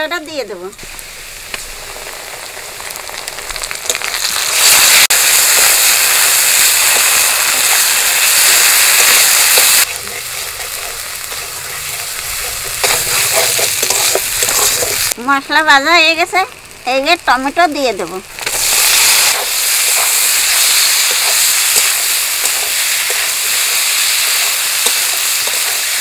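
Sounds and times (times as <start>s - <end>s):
paste sizzling in hot oil: 0.1s - 26.0s
spatula stirring in wok: 5.4s - 15.2s, 18.4s - 26.0s.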